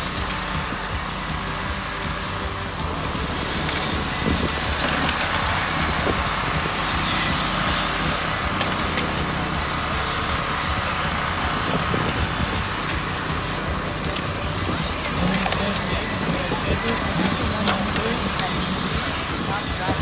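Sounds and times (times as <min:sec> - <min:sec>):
outdoor background noise: 0:00.0 - 0:20.0
rc car motors whining: 0:00.0 - 0:20.0.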